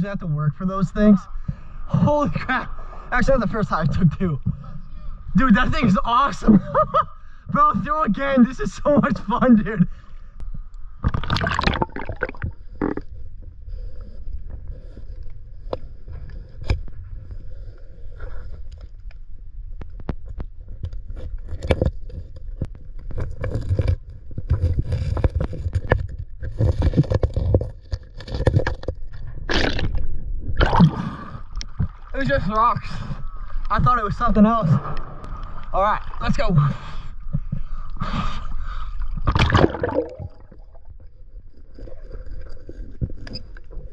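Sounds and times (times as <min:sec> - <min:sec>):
low rumble: 0:32.8 - 0:41.3.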